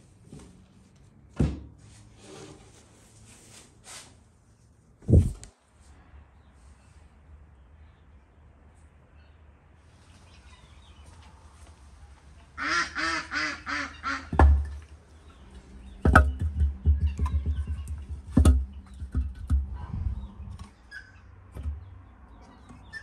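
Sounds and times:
clattering knocks of logs: 14.2 - 19.8.

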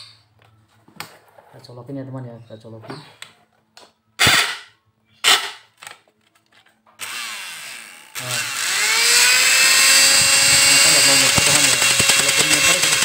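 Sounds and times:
hand mixer motor whining: 7.0 - 13.0.

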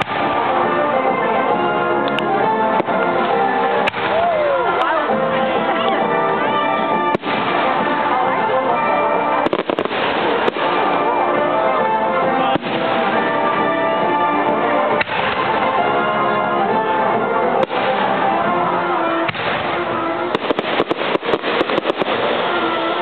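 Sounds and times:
fireworks bangs: 0.0 - 23.0
fireworks crackling: 0.0 - 23.0
music: 0.0 - 23.0.

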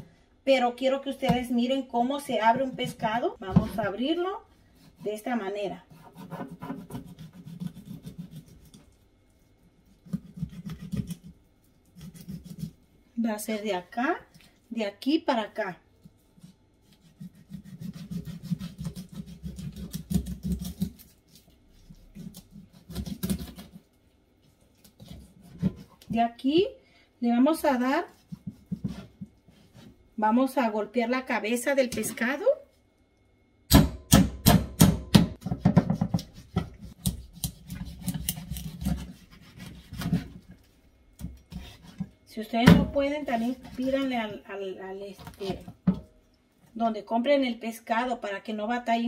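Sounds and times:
knife scraping fish scales: 5.9 - 12.8, 16.1 - 26.1, 36.1 - 40.6, 41.3 - 42.1, 43.2 - 44.2.

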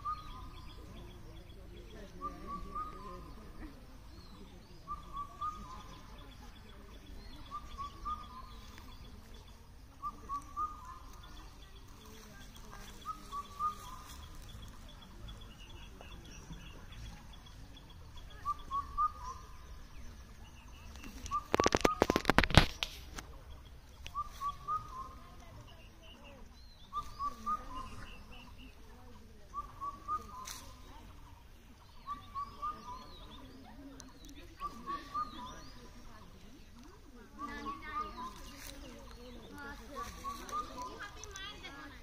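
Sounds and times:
bird call: 0.0 - 1.1, 1.9 - 3.4, 4.2 - 36.8, 37.4 - 42.0
faint bird chirping: 0.0 - 42.0.

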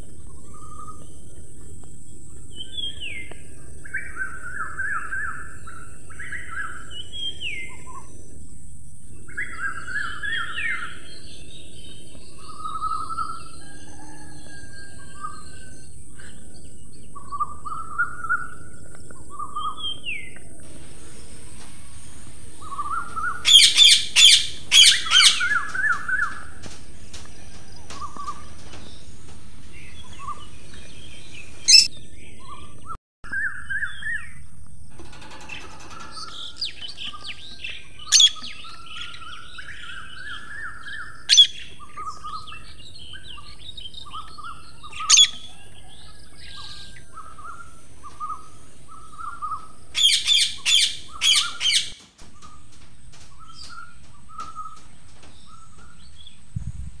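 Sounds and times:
soft chirps: 20.7 - 31.9
parrots calling shrilly: 31.5 - 31.9.

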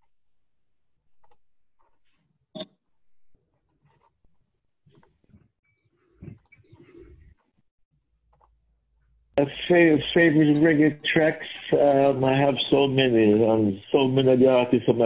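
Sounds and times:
computer mouse clicks: 1.2 - 2.0, 4.9 - 5.2, 8.3 - 8.6.

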